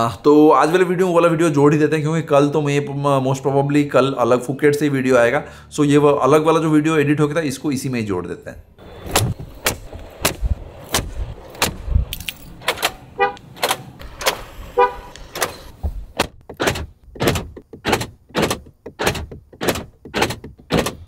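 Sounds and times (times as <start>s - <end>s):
car horn chirping: 13.1s - 13.5s, 14.7s - 15.2s.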